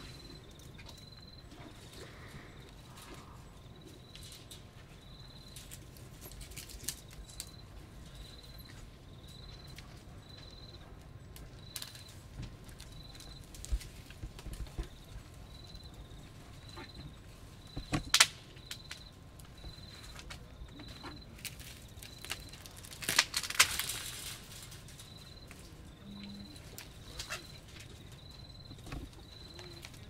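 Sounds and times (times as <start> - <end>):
branches cracking and snapping: 5.4 - 7.6, 11.4 - 15.1, 17.9 - 25.8.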